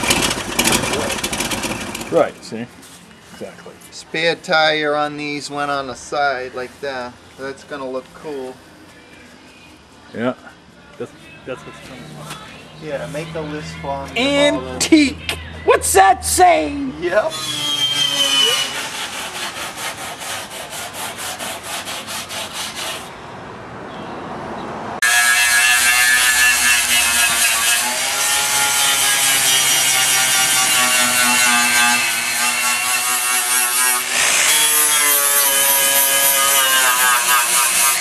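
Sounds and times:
angle grinder grinding metal: 0:17.0 - 0:20.7, 0:25.0 - 0:38.0.

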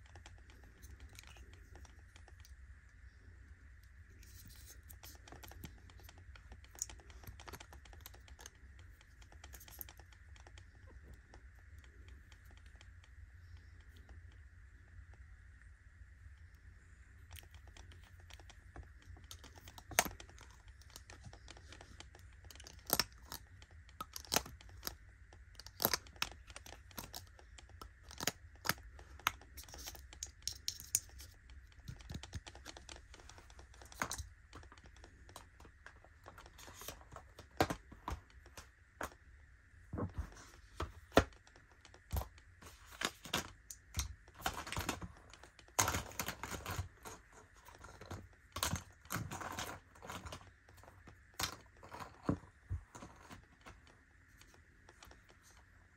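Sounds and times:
faint low hum: 0:00.0 - 0:55.9.

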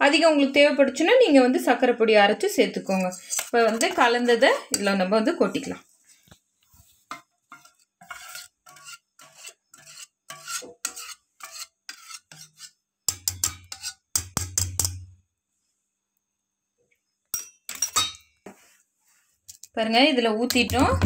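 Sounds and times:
spatula scraping batter from bowl: 0:02.7 - 0:05.0, 0:06.7 - 0:14.2
knocks against metal bowl: 0:20.5 - 0:21.0.

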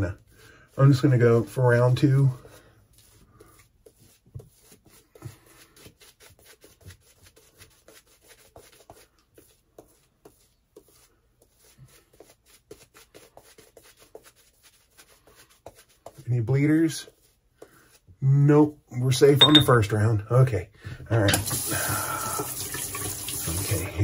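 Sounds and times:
shaving brush rubbing: 0:00.0 - 0:18.1.

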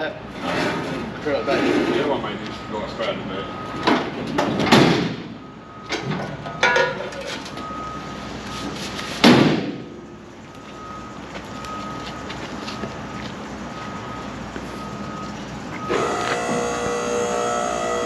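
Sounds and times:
faint reversing beeper: 0:01.2 - 0:04.0, 0:05.3 - 0:06.8, 0:07.5 - 0:09.2, 0:09.9 - 0:18.0
steel tailgate slamming shut: 0:03.9 - 0:07.2, 0:09.2 - 0:09.9.

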